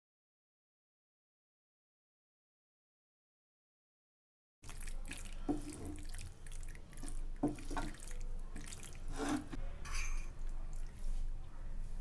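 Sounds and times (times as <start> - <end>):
spatula squelching pasta in sauce: 4.6 - 9.6.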